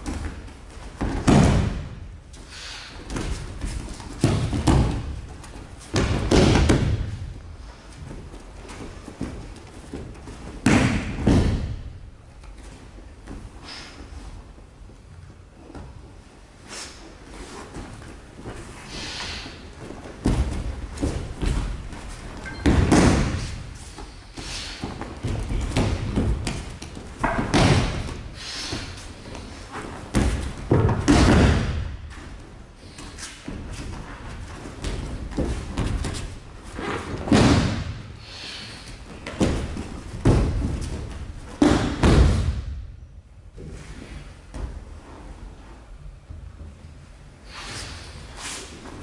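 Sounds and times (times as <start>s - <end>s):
bodies thumping on mats: 0.0s - 2.1s, 3.1s - 13.6s, 19.4s - 38.2s, 38.9s - 45.1s.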